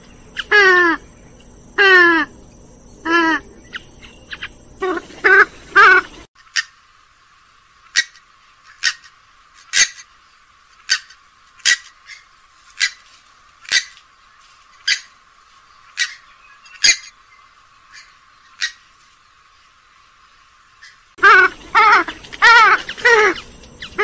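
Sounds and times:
bird calling sharply: 0:00.0 - 0:02.4, 0:03.0 - 0:06.8, 0:20.8 - 0:24.0.

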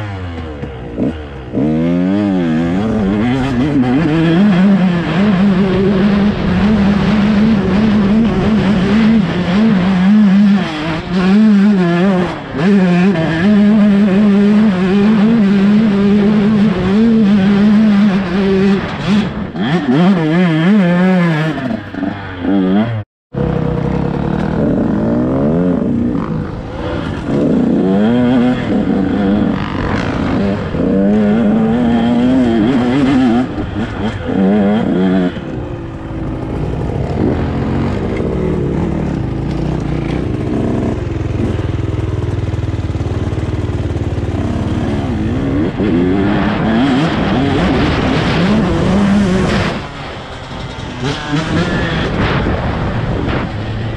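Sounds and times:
dirt bike engine revving: 0:00.0 - 0:53.9
rushing noise: 0:24.9 - 0:41.5, 0:42.7 - 0:53.9.

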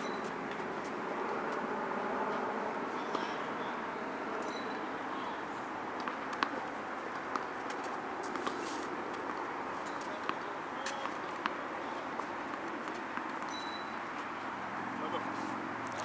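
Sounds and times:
faint bird chirps: 0:00.0 - 0:00.2, 0:13.5 - 0:14.0
outdoor background noise: 0:00.0 - 0:16.0
tennis ball bouncing on court: 0:03.1 - 0:03.4, 0:06.0 - 0:14.3.

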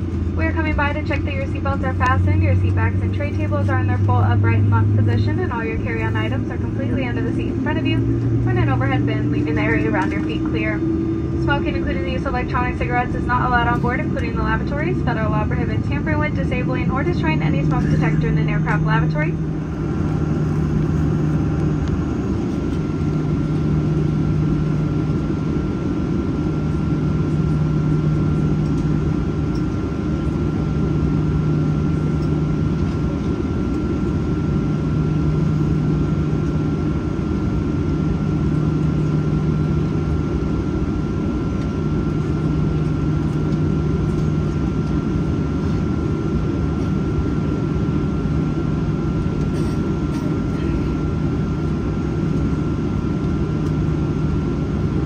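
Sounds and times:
low engine rumble: 0:00.0 - 0:55.0
low hum: 0:00.0 - 0:55.0
high-pitched whine: 0:01.2 - 0:33.2.

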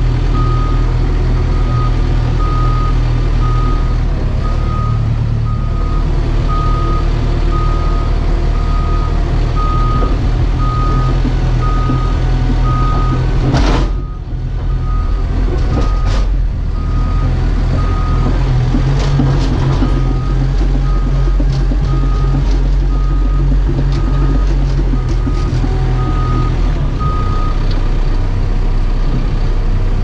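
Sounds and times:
diesel engine running: 0:00.0 - 0:30.0
backup alarm beeping: 0:01.6 - 0:13.2.

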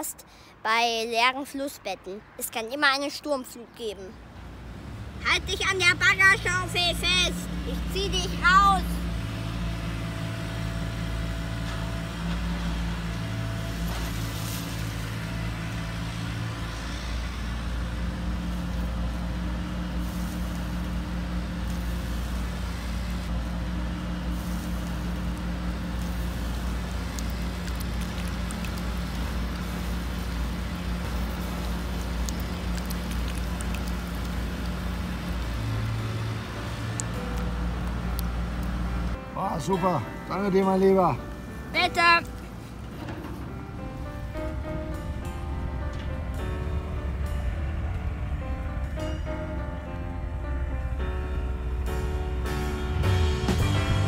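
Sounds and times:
excavator engine droning: 0:04.4 - 0:54.0.

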